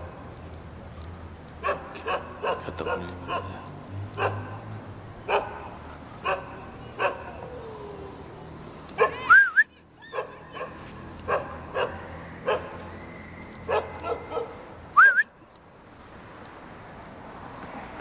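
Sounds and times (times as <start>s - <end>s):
dog barking: 1.6s - 4.6s, 5.3s - 7.4s, 9.0s - 9.3s, 10.1s - 12.8s, 13.7s - 14.6s.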